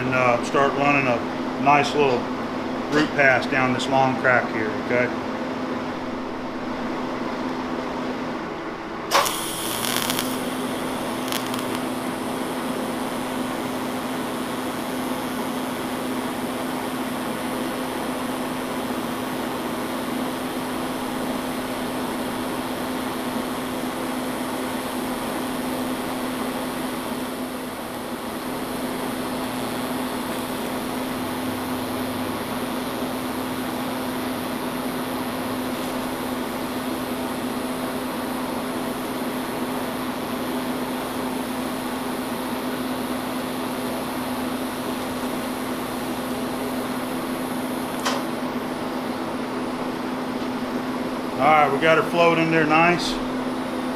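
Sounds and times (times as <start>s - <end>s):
welder hum: 0.0s - 5.2s, 8.4s - 53.9s
welding arc crackle: 9.1s - 48.7s
welding arc hiss: 9.1s - 48.8s.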